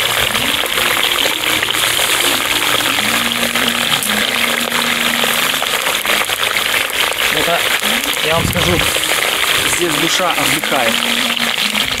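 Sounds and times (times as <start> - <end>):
meat sizzling in a frying pan: 0.0 - 12.0.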